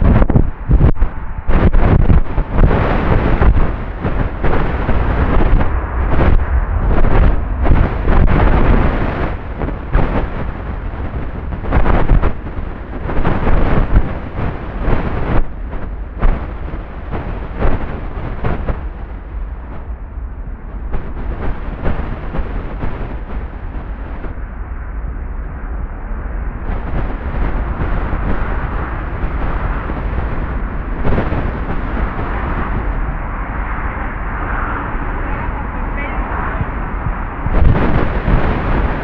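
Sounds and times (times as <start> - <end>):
jet engines rumbling: 0.0 - 39.0.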